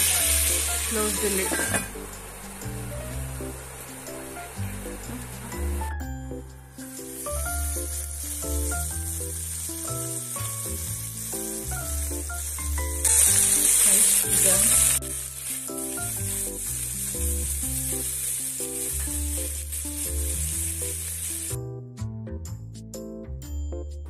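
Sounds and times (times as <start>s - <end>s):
vegetables sizzling in oil: 0.0s - 21.6s
piano background music: 0.0s - 24.0s.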